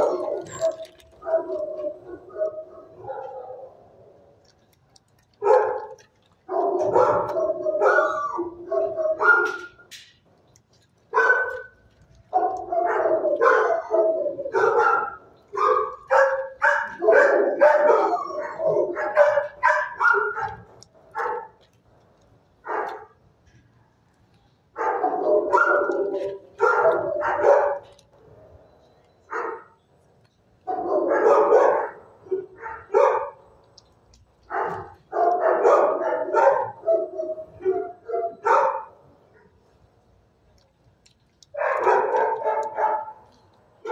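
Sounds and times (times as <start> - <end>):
dog barking: 0.0 - 4.0, 5.4 - 9.9, 11.1 - 21.6, 22.6 - 23.2, 24.8 - 27.9, 29.3 - 29.8, 30.6 - 33.4, 34.5 - 39.5, 41.6 - 43.2.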